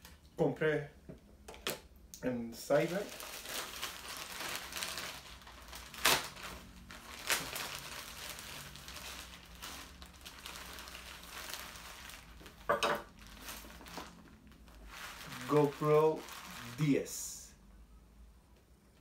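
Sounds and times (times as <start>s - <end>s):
packaging rustling and crinkling: 2.7s - 17.1s.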